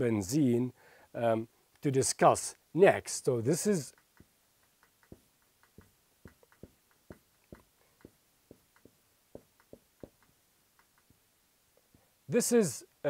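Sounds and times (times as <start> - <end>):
marker squeaking on whiteboard: 3.9 - 11.2.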